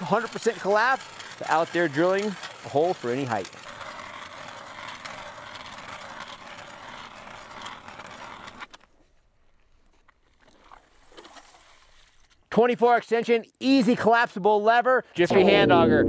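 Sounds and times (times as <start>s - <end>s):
ice auger blades scraping ice: 0.0s - 9.1s.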